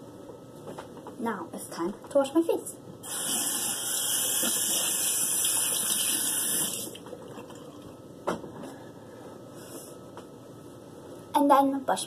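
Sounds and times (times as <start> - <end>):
sink tap running: 3.0 - 7.0.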